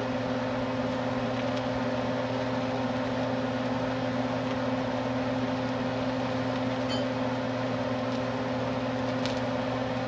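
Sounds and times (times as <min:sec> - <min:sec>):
exhaust fan humming: 0:00.0 - 0:10.0.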